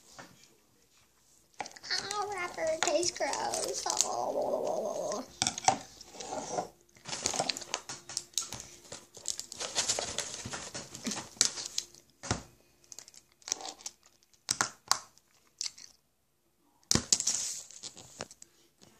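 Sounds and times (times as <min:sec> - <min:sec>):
wrappers crinkling and tearing: 0:01.8 - 0:05.3, 0:07.0 - 0:12.0, 0:12.8 - 0:14.5, 0:17.1 - 0:18.4.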